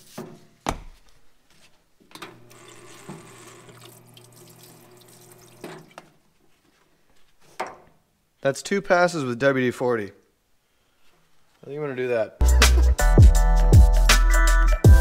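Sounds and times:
pump humming: 2.4s - 6.0s
solvent splashing: 2.4s - 6.1s.

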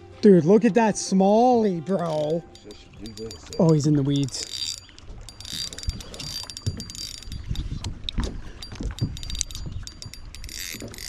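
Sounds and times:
fishing reel clicking: 2.0s - 7.9s, 8.6s - 11.0s
low knocks and thumps: 5.0s - 11.0s.

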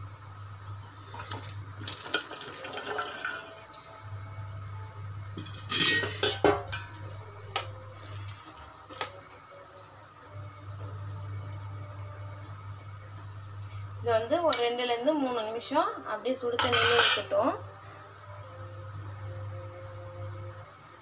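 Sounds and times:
vegetables splashing into boiling water: 1.4s - 3.6s
metal clatter against pan: 5.4s - 6.9s, 16.6s - 17.4s.

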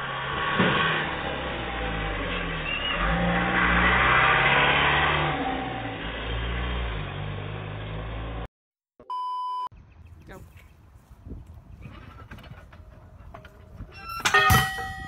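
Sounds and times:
truck engine revving: 0.0s - 8.5s
electronic beep: 9.0s - 9.7s.

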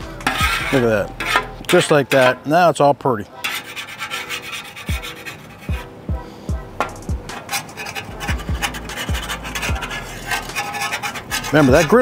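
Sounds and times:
background music with deep beat: 0.0s - 2.3s, 4.9s - 7.4s, 8.1s - 10.6s
metal spatula scraping a griddle: 0.0s - 2.8s, 3.4s - 12.0s.

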